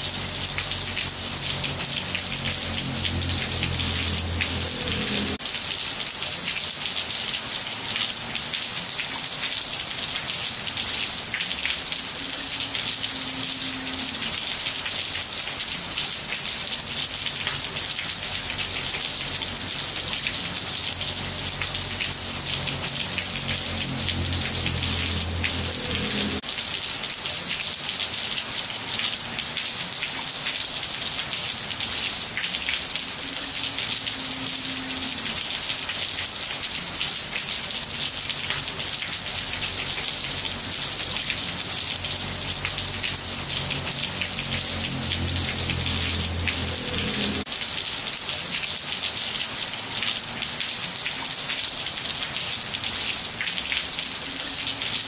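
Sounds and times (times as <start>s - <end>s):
rain falling on roof tiles: 0.0s - 55.0s.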